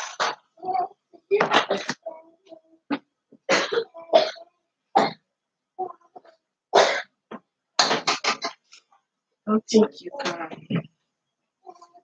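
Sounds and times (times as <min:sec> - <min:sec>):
person clearing throat: 0:03.5 - 0:04.4
person coughing: 0:03.5 - 0:04.4.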